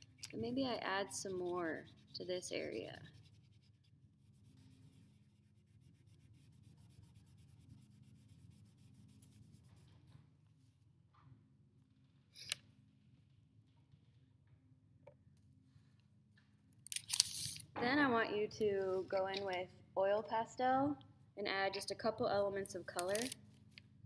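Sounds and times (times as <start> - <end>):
low steady hum: 0.0 - 12.2
charcoal scratching on paper: 0.2 - 10.2.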